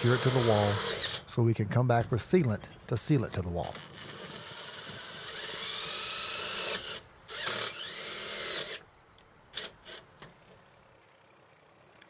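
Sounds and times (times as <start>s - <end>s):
cordless drill driving screws: 0.0s - 1.3s, 3.7s - 8.8s, 9.5s - 10.1s.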